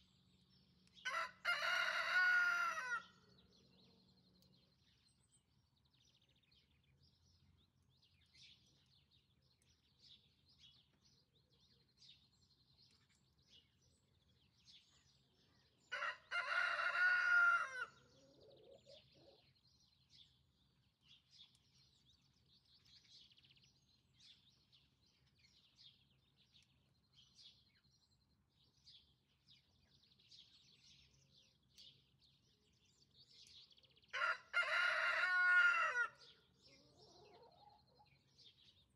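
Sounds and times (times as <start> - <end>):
small birds chirping: 0.0 - 38.9
rooster crowing: 1.1 - 3.1, 15.9 - 18.0, 34.1 - 36.3.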